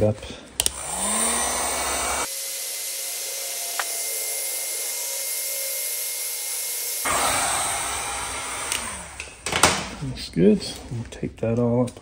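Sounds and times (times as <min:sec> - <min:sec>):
heat gun blowing air: 0:00.6 - 0:09.4.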